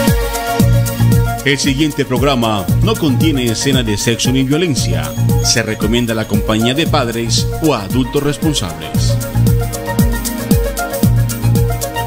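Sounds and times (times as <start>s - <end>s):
synth tones: 4.6s - 10.1s.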